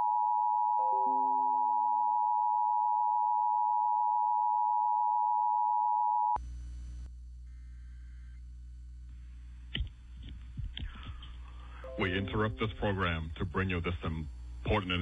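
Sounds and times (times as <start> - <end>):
low steady hum: 6.4 - 15.0.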